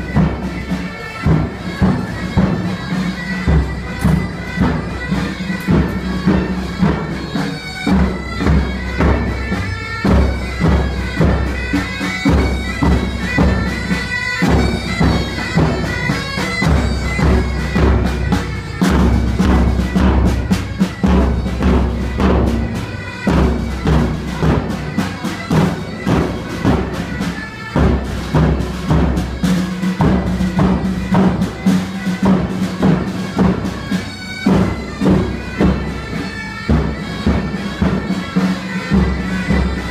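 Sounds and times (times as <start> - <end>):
bagpipes playing melody with drone: 0.0 - 39.9
bass drum march beat: 0.0 - 39.9.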